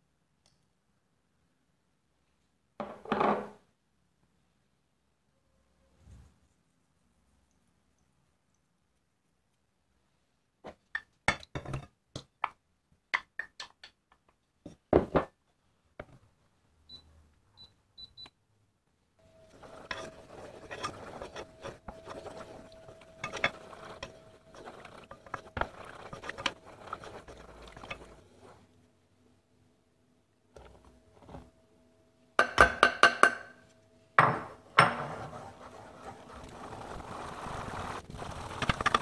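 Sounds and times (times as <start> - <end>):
spoon scraping in a saucepan: 19.2 - 28.6, 34.8 - 37.3.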